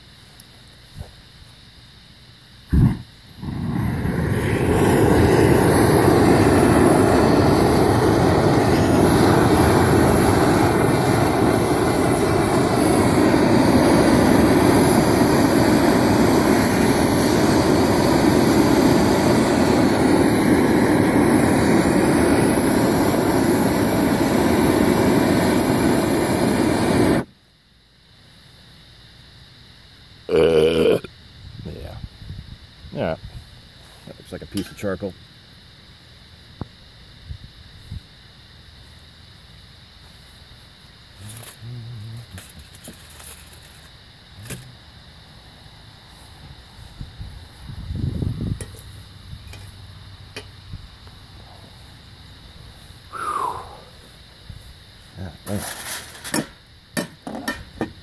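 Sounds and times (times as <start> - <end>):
propane torch flame rushing: 2.7 - 27.3, 42.2 - 44.8, 55.4 - 56.6
torch lighting burst: 2.7 - 27.3.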